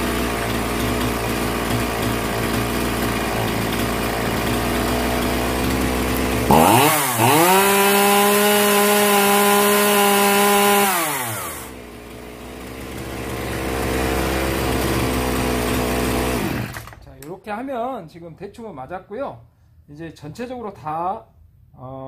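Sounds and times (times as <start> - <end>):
chainsaw engine idling and revving: 0.0 - 17.1.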